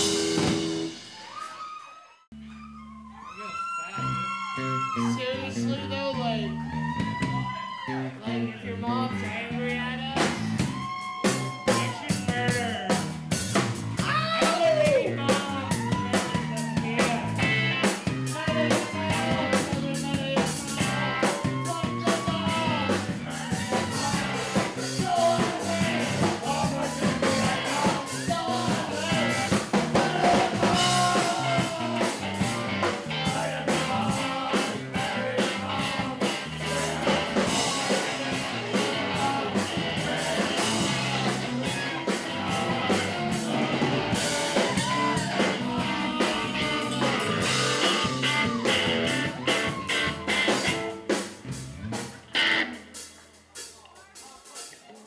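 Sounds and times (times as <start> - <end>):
drum kit: 0.0 - 1.8, 9.5 - 55.0
electric guitar: 10.0 - 53.2
person singing: 14.0 - 50.8.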